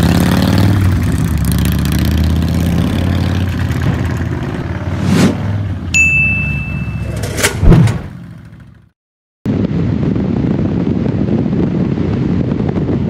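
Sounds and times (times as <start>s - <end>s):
motorcycle road noise: 0.0s - 13.0s
wind rush: 4.1s - 5.8s, 9.5s - 13.0s.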